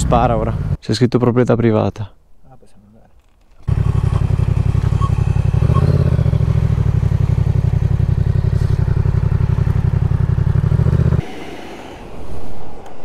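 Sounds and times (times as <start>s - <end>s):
motorcycle engine at low revs: 3.6s - 11.2s.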